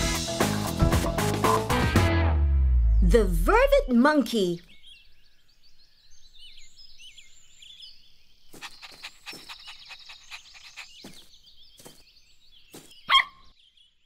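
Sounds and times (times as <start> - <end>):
birds chirping: 2.8 - 14.0.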